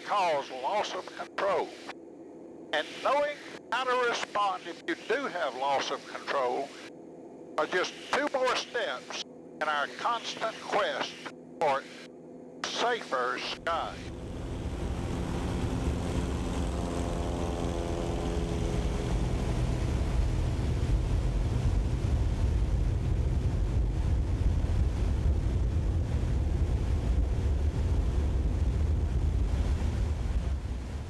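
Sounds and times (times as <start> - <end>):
propeller airplane engine drone: 0.0 - 31.0.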